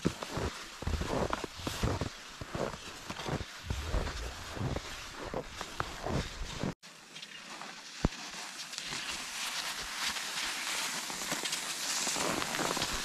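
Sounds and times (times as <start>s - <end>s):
skis sliding over snow: 0.0s - 13.0s
wind rumbling on microphone: 0.8s - 6.8s.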